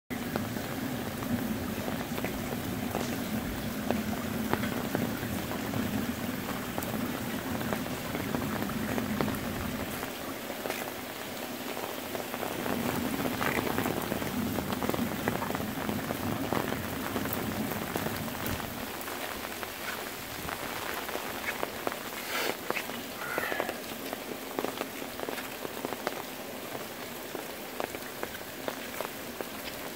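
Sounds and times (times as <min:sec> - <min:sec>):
heavy rain on leaves and pavement: 0:00.1 - 0:29.9.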